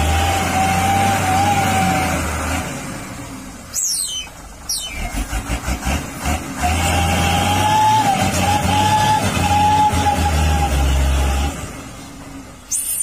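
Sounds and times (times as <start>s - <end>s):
falling whistles: 3.7s - 5.2s
toy motor whining: 3.7s - 5.2s.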